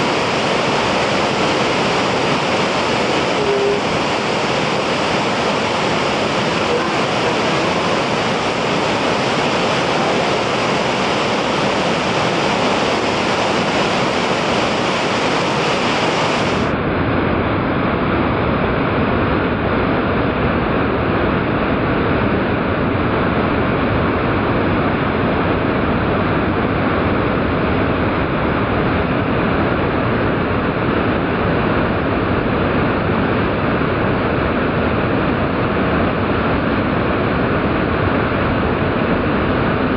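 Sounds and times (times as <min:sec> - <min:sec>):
slowed waterfall rushing: 0:00.0 - 0:16.8.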